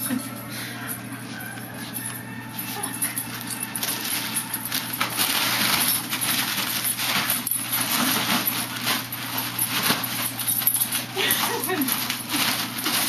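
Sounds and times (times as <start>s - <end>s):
foil balloons crinkling: 1.6s - 13.0s.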